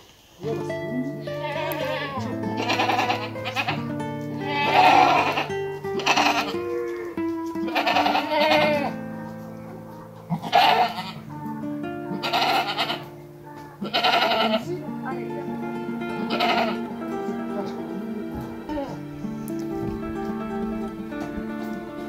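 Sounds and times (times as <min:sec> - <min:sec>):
background music with held notes: 0:00.4 - 0:22.0
goats bleating: 0:01.2 - 0:22.0.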